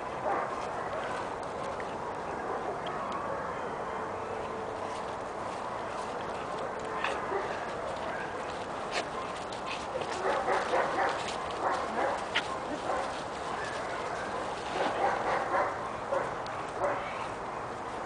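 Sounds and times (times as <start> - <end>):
puppy barking: 10.0 - 17.2.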